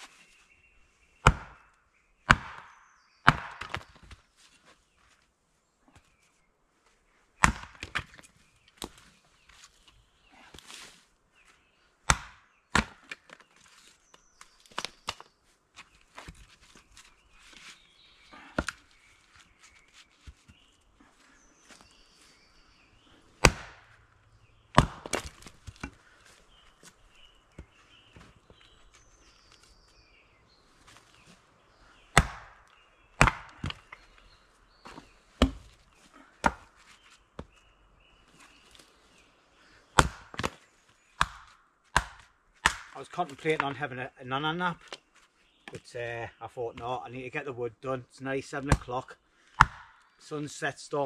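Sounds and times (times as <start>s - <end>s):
axe chopping wood: 1.2s - 4.2s, 7.4s - 8.2s, 12.0s - 13.4s, 18.4s - 18.8s, 23.4s - 24.0s, 24.7s - 26.0s, 32.1s - 34.0s, 34.8s - 35.8s, 36.4s - 36.8s, 40.0s - 40.6s, 41.2s - 43.6s, 49.6s - 50.0s.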